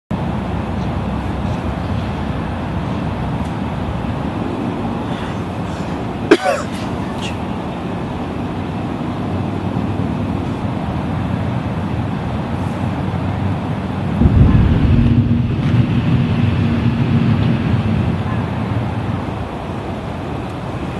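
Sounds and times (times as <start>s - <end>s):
distant traffic rumble: 0.1s - 20.9s
loud low rumble: 14.0s - 19.5s.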